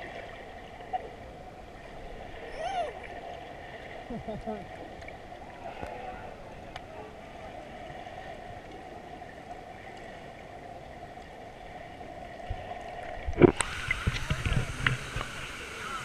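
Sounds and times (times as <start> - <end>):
muffled underwater waterfall rush: 0.0 - 16.0
falling water: 12.4 - 16.0.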